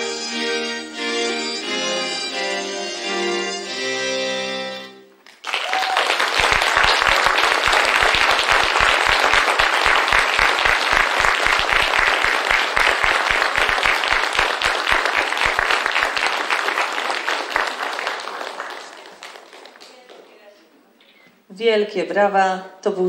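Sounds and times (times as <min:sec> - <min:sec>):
audience applauding: 0:05.2 - 0:20.6.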